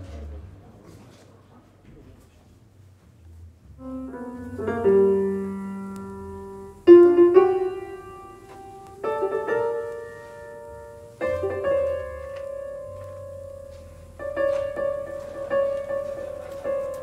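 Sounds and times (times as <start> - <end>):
slow piano chords: 3.6 - 17.0.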